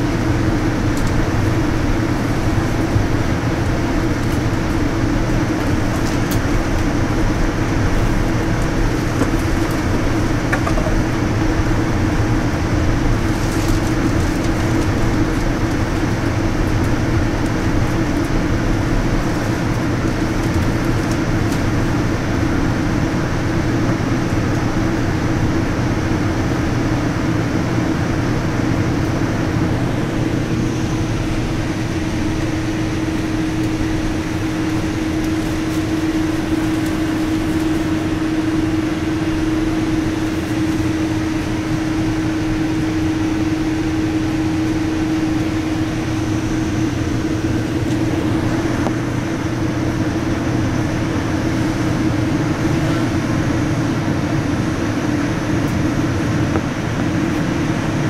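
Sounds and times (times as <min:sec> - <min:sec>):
airliner cabin rumble: 0:00.0 - 0:58.0.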